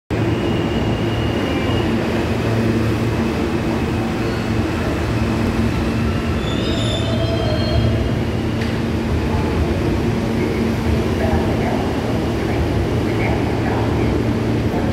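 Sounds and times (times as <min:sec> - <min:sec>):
subway train rumbling past: 0:00.1 - 0:14.9
high wheel squeals: 0:06.1 - 0:08.7.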